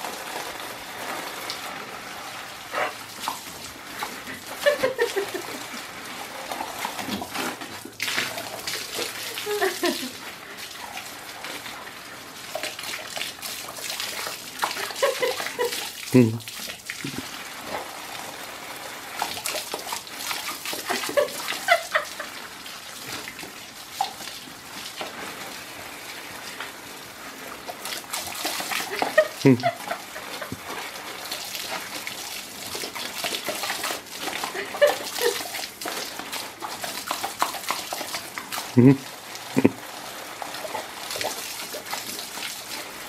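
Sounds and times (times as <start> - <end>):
hose water splashing on bricks: 0.0 - 43.0
dog noises: 2.6 - 5.1.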